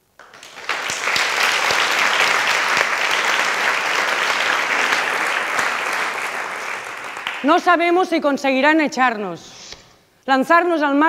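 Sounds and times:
large group applauding: 0:00.0 - 0:07.8.

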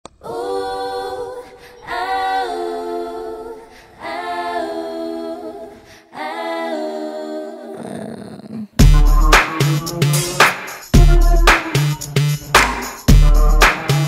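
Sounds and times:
a cappella vocal harmony: 0:00.1 - 0:08.6.

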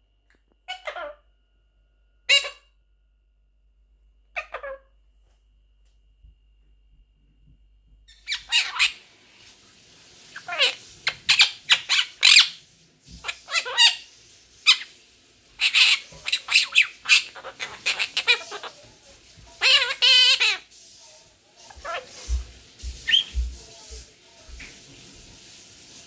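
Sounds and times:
parakeet squawking and chattering: 0:00.7 - 0:01.2, 0:02.3 - 0:02.7, 0:04.4 - 0:04.9, 0:08.1 - 0:09.0, 0:10.3 - 0:12.6, 0:13.2 - 0:15.0, 0:15.6 - 0:18.9, 0:19.5 - 0:20.7, 0:21.6 - 0:22.4, 0:23.0 - 0:23.5.

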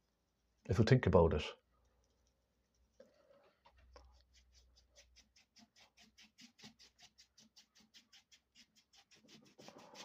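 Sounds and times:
paintbrush scrubbing on canvas: 0:04.0 - 0:10.0.

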